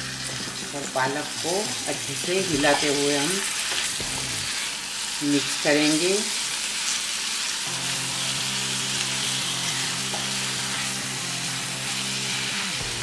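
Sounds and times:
spinach sizzling in hot oil: 0.0 - 13.0
background music with held notes: 7.7 - 13.0.

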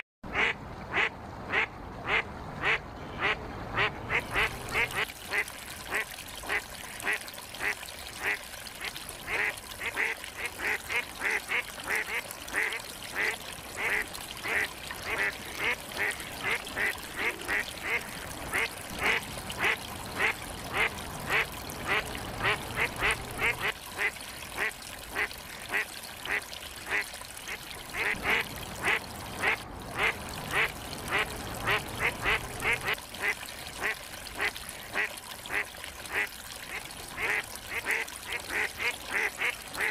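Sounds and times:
ducks calling: 0.3 - 5.4, 9.3 - 25.3.

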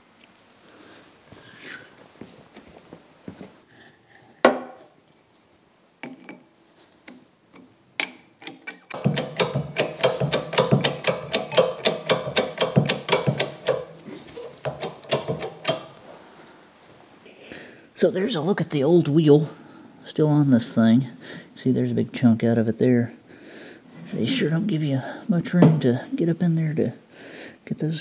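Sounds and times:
hydraulic jack pumping clicks: 8.0 - 13.9, 14.6 - 15.9
wooden knocks: 8.9 - 13.9, 14.6 - 15.9.

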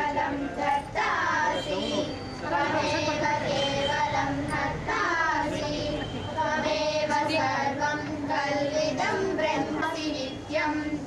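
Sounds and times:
high-pitched voices singing: 0.0 - 11.0
people talking: 0.0 - 11.0.

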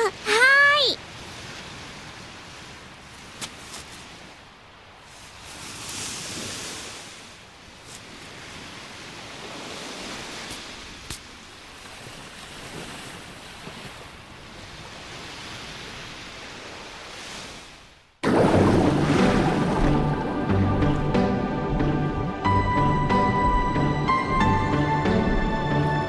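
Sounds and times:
sea waves washing on beach: 0.0 - 21.9
loud music: 18.9 - 26.0.

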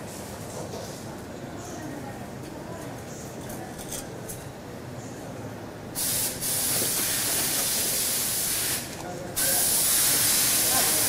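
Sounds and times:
compressed air hissing: 6.0 - 11.0.

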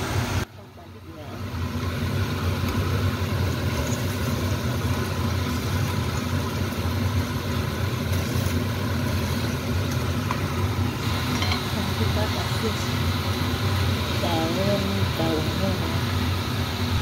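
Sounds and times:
fish sizzling in hot oil: 1.3 - 17.0.

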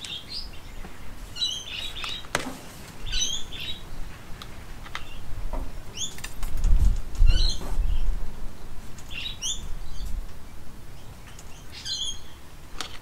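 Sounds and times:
bird chirping: 0.0 - 2.3, 3.0 - 5.3, 5.9 - 6.3, 7.2 - 12.5.

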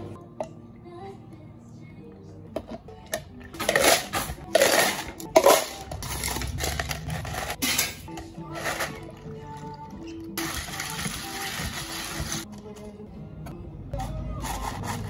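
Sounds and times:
faint background music: 0.0 - 15.0
ice cubes clattering into plastic cups: 3.6 - 9.2, 10.4 - 12.4.

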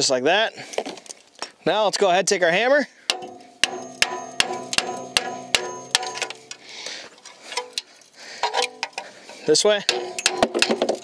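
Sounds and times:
hammer striking metal: 3.1 - 6.6.

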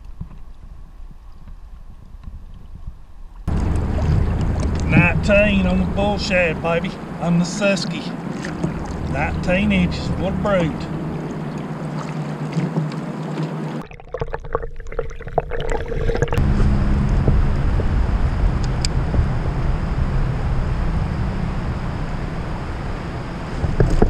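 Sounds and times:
low rumble: 0.0 - 12.0, 15.6 - 24.0
river water rushing and gurgling: 3.5 - 13.9.

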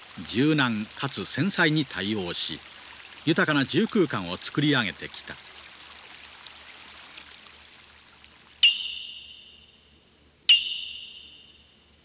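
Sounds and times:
faint running water hiss: 0.0 - 12.0
small high-pitched bell strikes: 10.5 - 11.7.

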